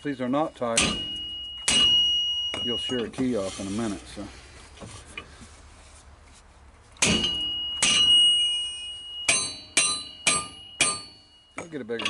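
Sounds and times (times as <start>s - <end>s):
hammer blows on metal ringing: 0.2s - 3.2s, 7.0s - 12.0s.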